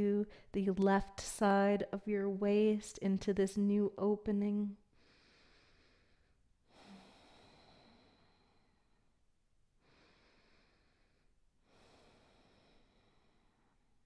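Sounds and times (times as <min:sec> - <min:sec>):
slow soft breathing: 0:04.9 - 0:09.2, 0:09.8 - 0:14.0.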